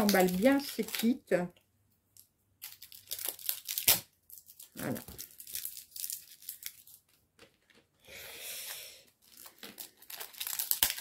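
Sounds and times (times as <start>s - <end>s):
plastic wrap crinkling: 0.0s - 1.4s, 2.2s - 8.0s, 9.1s - 11.0s
wrap tearing: 9.4s - 11.0s.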